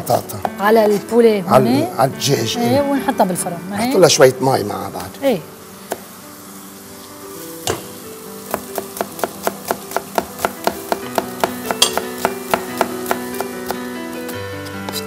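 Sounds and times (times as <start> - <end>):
soft background music: 0.0 - 15.0
spoon tapping cooking pot: 7.6 - 7.9, 8.5 - 13.2.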